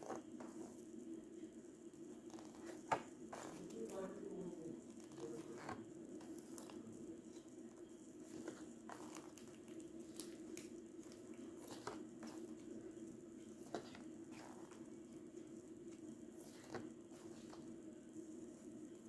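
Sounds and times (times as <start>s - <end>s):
low steady hum: 0.0s - 19.0s
paper rustling: 8.2s - 12.7s, 16.4s - 17.7s.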